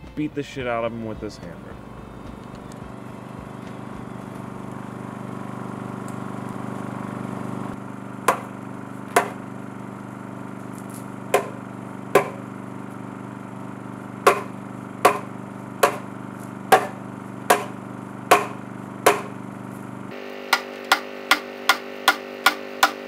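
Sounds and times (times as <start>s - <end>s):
steady low hum: 0.0s - 23.0s
hammer striking wood: 8.2s - 9.4s, 11.3s - 12.5s, 14.2s - 19.4s, 20.5s - 23.0s.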